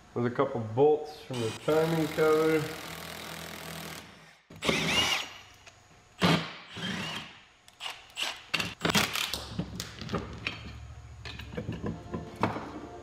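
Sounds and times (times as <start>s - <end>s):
cordless power tool whirring: 1.4s - 5.4s.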